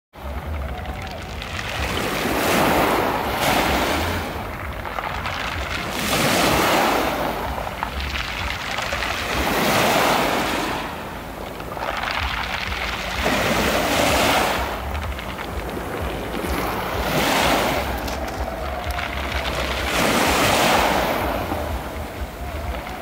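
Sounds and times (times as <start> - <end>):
pebbles clattering in backwash: 0.2 - 23.0
waves washing on pebbles: 0.2 - 23.0.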